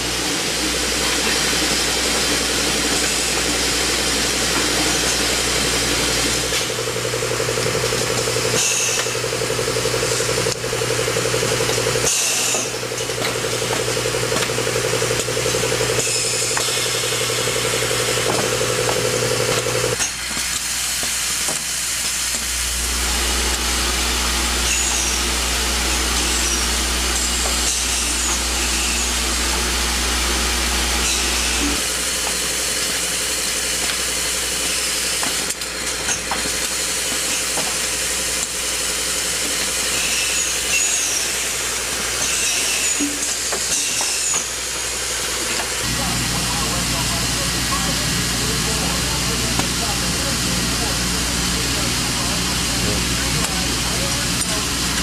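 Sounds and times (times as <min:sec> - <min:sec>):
deeper machine hum: 0:00.0 - 0:20.0, 0:20.6 - 0:35.8, 0:44.5 - 0:55.0
machine hum: 0:00.0 - 0:20.0, 0:20.6 - 0:35.7, 0:44.5 - 0:55.0
pneumatic air hisses: 0:08.5 - 0:09.2, 0:12.0 - 0:12.8, 0:16.0 - 0:18.7, 0:19.5 - 0:35.5, 0:36.1 - 0:45.8.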